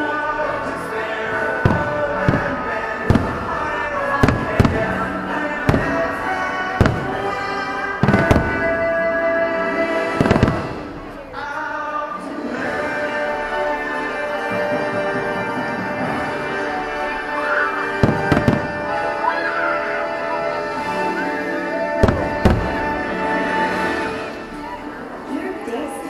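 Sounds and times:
soundtrack music: 0.0s - 25.7s
distant fireworks bangs: 1.6s - 9.1s, 10.0s - 11.2s, 17.9s - 19.2s, 21.9s - 23.7s.

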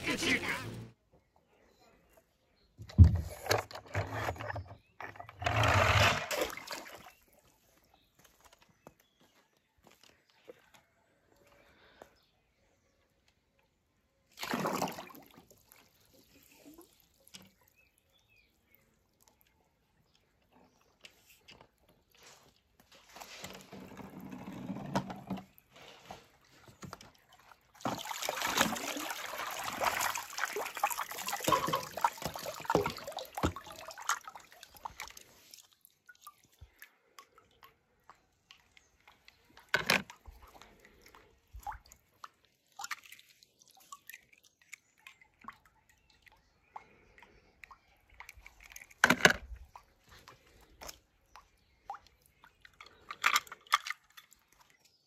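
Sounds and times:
water splashing and sloshing: 2.0s - 55.0s
water drips: 26.4s - 55.0s.

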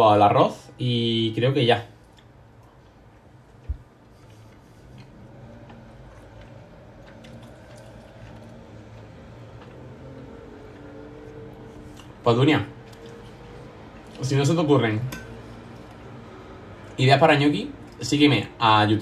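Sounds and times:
low steady hum: 0.0s - 19.0s
faint chewing: 1.9s - 14.4s, 15.1s - 17.0s, 17.8s - 18.0s.

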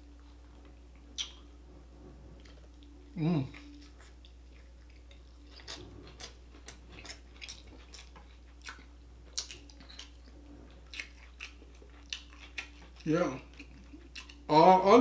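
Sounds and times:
steady low hum: 0.0s - 15.0s
chewing mouth clicks and smacks: 0.6s - 1.4s, 3.6s - 14.5s.

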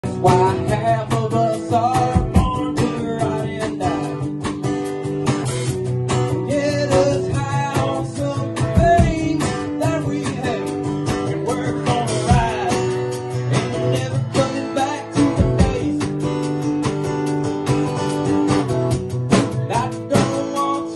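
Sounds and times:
man singing: 0.0s - 4.5s, 6.3s - 16.5s, 19.3s - 20.9s
drum kit beat: 0.0s - 20.9s
strummed acoustic guitar: 0.0s - 20.9s.

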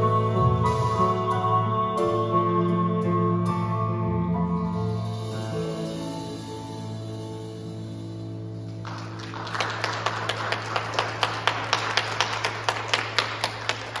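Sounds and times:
audience applause: 8.8s - 14.0s
close person clapping steadily: 8.8s - 14.0s.

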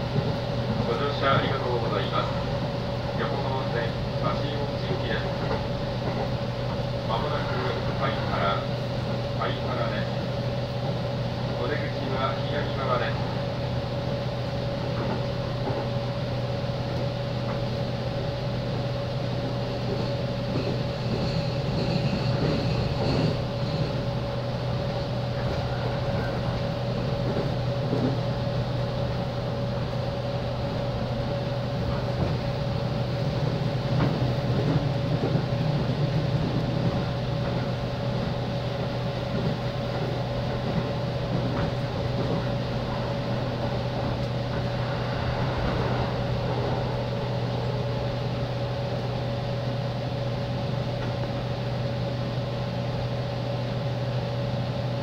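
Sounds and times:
electric train rumble and hum: 0.0s - 55.0s.

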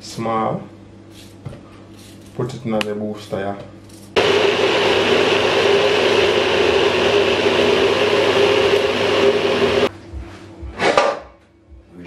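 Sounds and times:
blender grinding: 4.2s - 9.9s.

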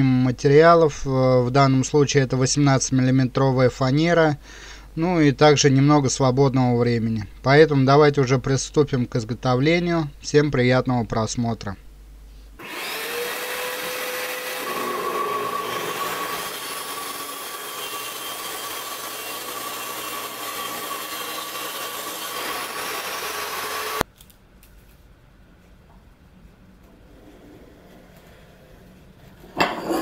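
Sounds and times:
table saw cutting plywood: 12.6s - 24.0s.

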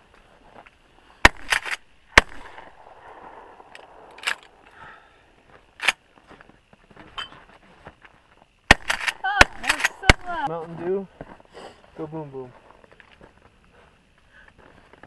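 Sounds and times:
rumbling gunshot echo: 1.2s - 4.6s
shotgun shots: 1.2s - 4.6s, 8.7s - 10.5s.

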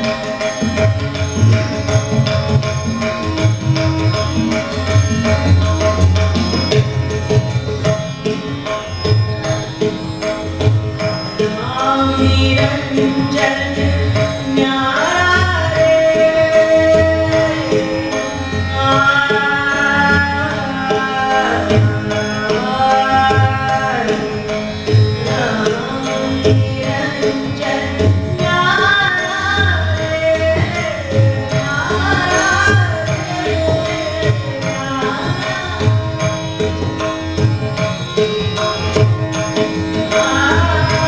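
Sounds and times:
harmonium notes: 0.0s - 41.0s
tabla strokes: 0.0s - 41.0s
tanpura drone: 0.0s - 41.0s
woman singing: 11.6s - 24.4s, 25.2s - 36.4s, 40.1s - 41.0s.

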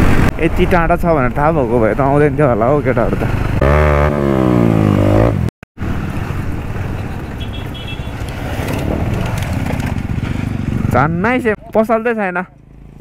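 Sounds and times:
motorcycle engine revving: 2.4s - 11.6s
motorcycle rolling over cobbles: 8.4s - 10.8s.

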